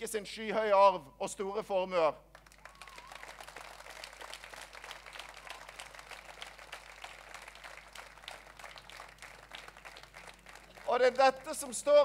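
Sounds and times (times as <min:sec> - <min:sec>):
audience applauding: 0:02.3 - 0:11.8.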